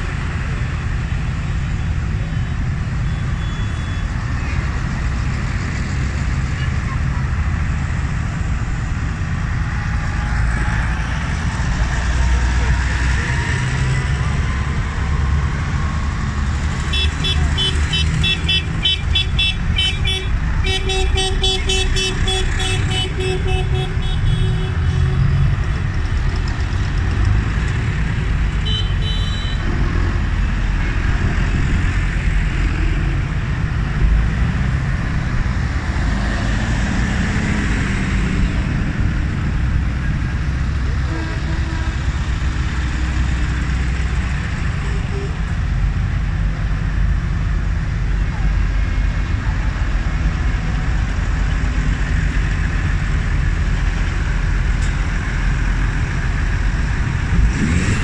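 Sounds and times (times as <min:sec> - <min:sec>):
tractor diesel engines passing: 0:00.0 - 0:58.0
horn tooting: 0:16.8 - 0:25.6, 0:28.5 - 0:29.7, 0:41.0 - 0:42.2.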